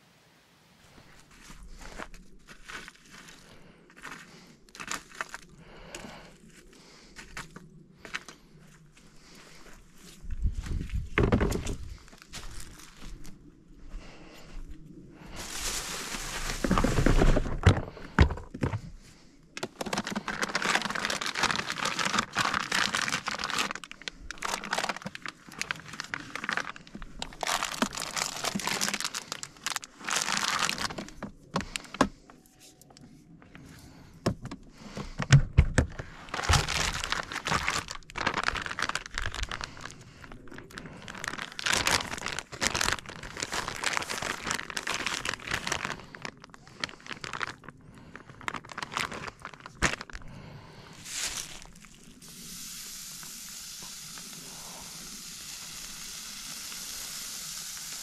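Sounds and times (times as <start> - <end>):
plastic packaging crinkling: 15.3 - 18.9, 19.6 - 32.1, 34.9 - 50.4, 51.0 - 52.2.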